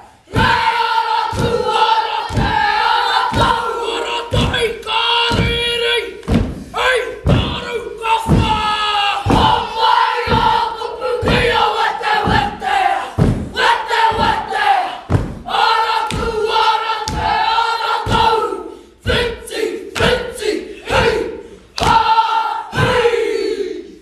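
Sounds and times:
boys chanting in unison: 0.0s - 24.0s
stamping feet and slapping hands: 0.4s - 3.7s, 4.3s - 6.7s, 8.2s - 9.6s, 16.0s - 17.4s, 21.8s - 22.1s.

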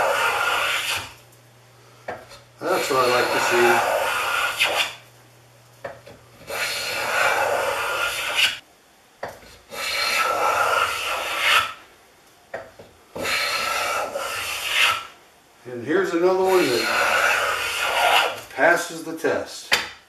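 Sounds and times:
hand plane shaving wood: 0.0s - 1.1s, 2.6s - 5.0s, 6.5s - 8.6s, 9.7s - 11.8s, 13.2s - 15.1s, 16.4s - 18.4s.

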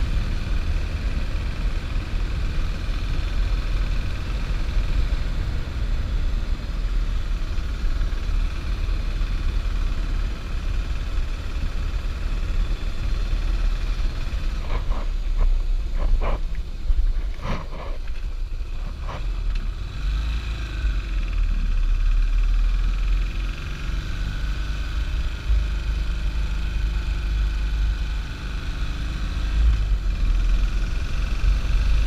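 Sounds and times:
motorcycle engine: 0.0s - 32.0s.

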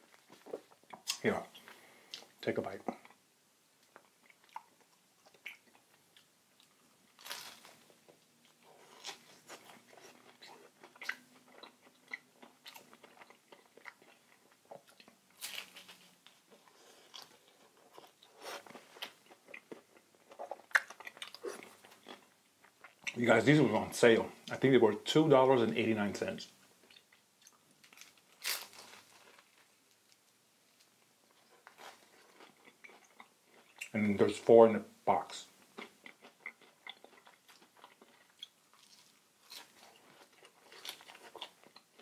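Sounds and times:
chewing crisp pancake: 3.8s - 23.2s, 26.8s - 33.9s, 35.6s - 42.0s.

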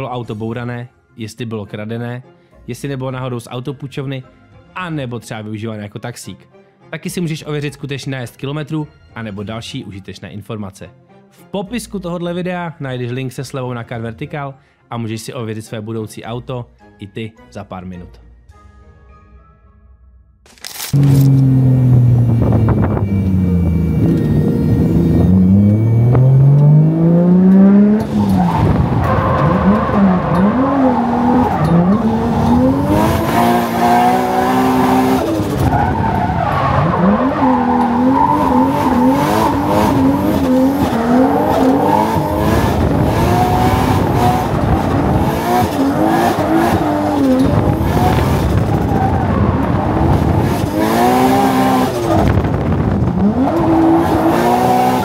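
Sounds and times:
tyres skidding and squealing: 20.9s - 55.0s
car engine revving: 21.0s - 55.0s.

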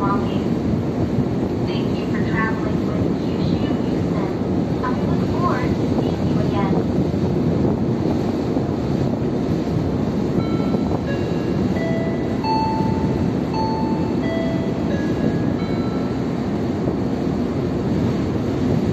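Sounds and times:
ship engines rumbling: 0.0s - 18.9s
water rushing along hull: 0.0s - 18.9s
wind: 0.0s - 18.9s
chime melody: 10.4s - 16.8s.

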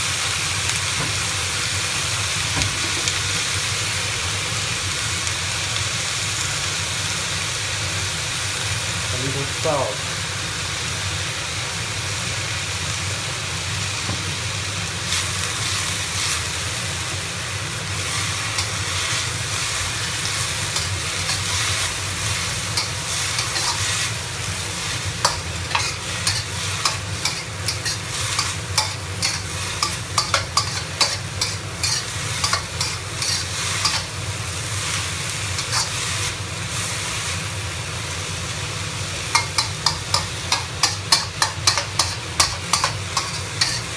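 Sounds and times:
potatoes sizzling in oil: 0.0s - 43.9s
metal spatula scraping a wok: 18.0s - 34.2s, 35.5s - 36.8s, 39.3s - 43.9s.

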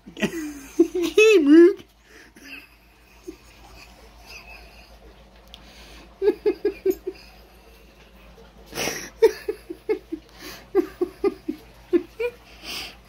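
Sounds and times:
person laughing: 0.0s - 1.8s, 2.4s - 5.2s, 6.2s - 7.6s, 8.8s - 12.4s.

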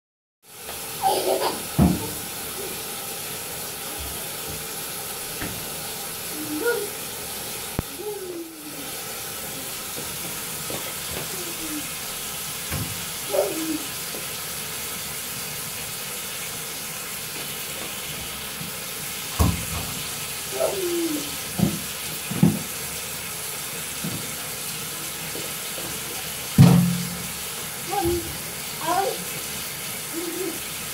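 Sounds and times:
water running into bathtub: 0.4s - 30.9s
toddler babbling: 6.3s - 7.0s, 7.9s - 9.7s, 11.2s - 11.9s, 13.3s - 13.9s, 20.5s - 21.4s, 27.9s - 29.3s, 30.1s - 30.7s.

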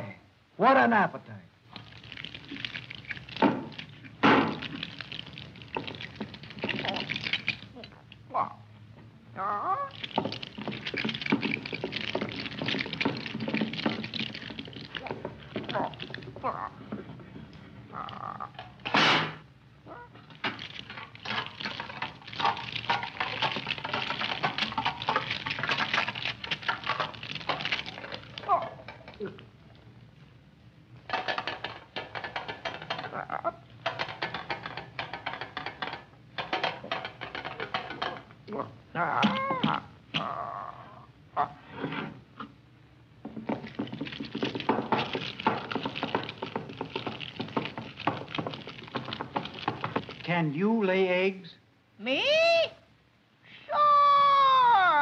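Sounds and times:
metal crunching and crackling: 1.7s - 8.3s, 9.9s - 19.5s, 20.2s - 30.2s, 31.0s - 38.5s, 43.1s - 50.5s.

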